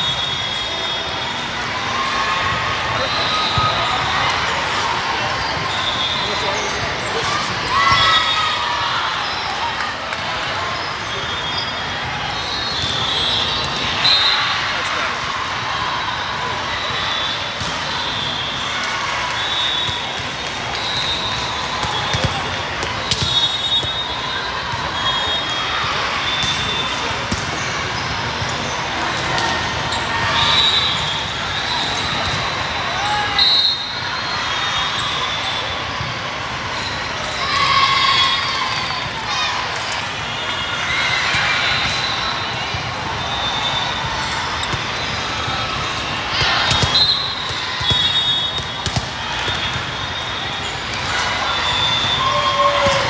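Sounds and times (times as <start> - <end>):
referee's whistle: 0.0 - 1.4, 3.0 - 4.0, 5.4 - 6.8, 11.0 - 14.7, 16.7 - 27.1, 30.2 - 32.4, 33.0 - 36.1, 40.3 - 45.2, 46.3 - 53.0
crowd chatter: 0.0 - 53.0
volleyballs being hit and bouncing: 19.8 - 24.1, 26.2 - 29.9, 44.0 - 51.2.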